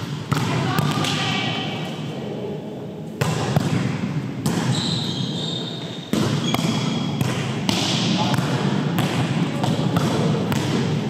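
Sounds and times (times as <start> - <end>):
volleyball being struck: 3.2 - 4.9, 6.1 - 11.0.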